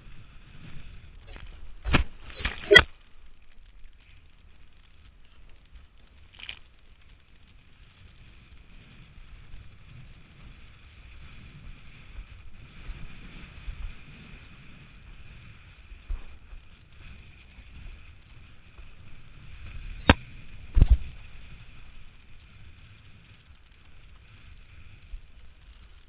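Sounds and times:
rushing water and wind: 1.2s - 3.0s.

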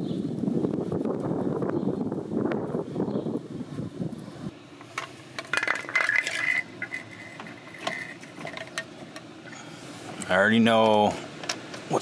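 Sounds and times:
metal tools clinking: 5.0s - 9.3s.

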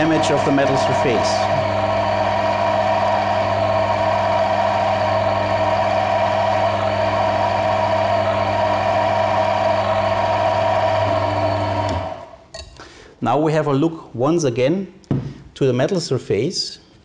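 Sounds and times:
test rig motor whining: 0.0s - 12.5s.

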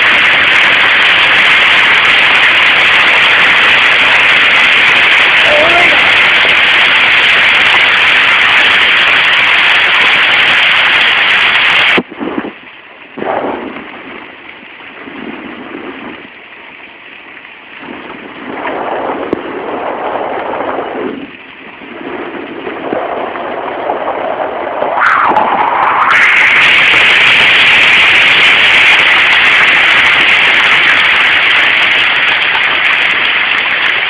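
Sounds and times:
hail and heavy rain: 0.0s - 12.0s, 26.2s - 34.0s.

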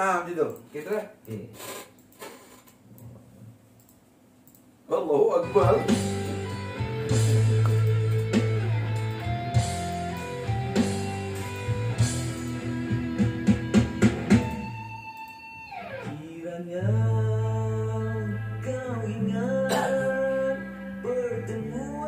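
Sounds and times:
bass notes: 5.5s - 14.9s, 16.8s - 22.0s
plucked guitar: 5.5s - 16.2s, 16.8s - 22.0s.

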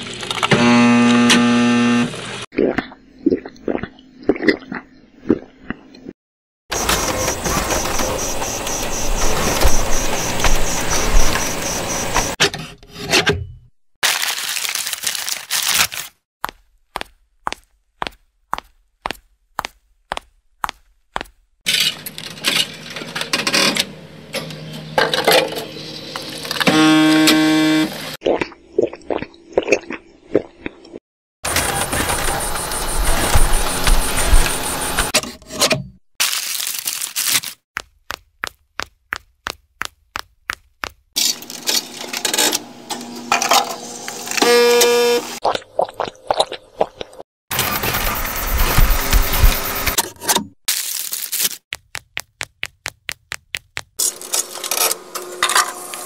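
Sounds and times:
buzzing tone: 0.5s - 2.2s, 44.4s - 45.4s
machine humming: 0.5s - 2.3s, 6.8s - 12.4s, 31.5s - 35.1s
coffee vending machine running: 6.7s - 12.4s, 31.5s - 35.2s, 41.2s - 45.4s, 47.5s - 50.0s, 54.0s - 56.0s
footsteps on a hard floor: 16.4s - 21.4s
footsteps on hard floor: 16.4s - 21.4s, 37.8s - 41.1s, 51.7s - 54.0s
vending machine clicking and whirring: 41.2s - 45.0s.

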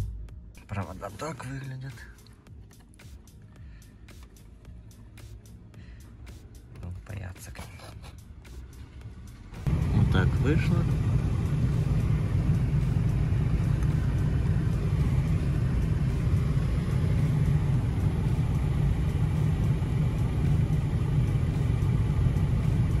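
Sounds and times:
car engine low rumble: 0.0s - 23.0s
heater blower fan air rush: 9.7s - 23.0s.

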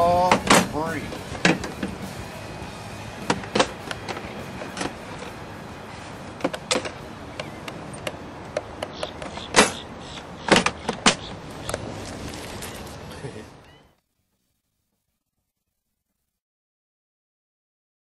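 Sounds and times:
steady background hiss: 0.0s - 15.2s
sharp clicks and knocks: 6.4s - 9.8s.

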